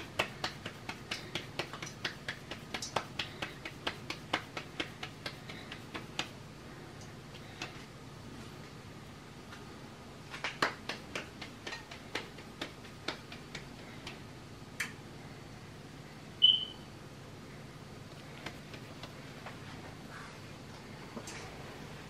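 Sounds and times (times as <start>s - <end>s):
hands slapping dough: 0.0s - 6.4s, 7.0s - 8.0s, 10.3s - 15.0s, 18.2s - 19.2s.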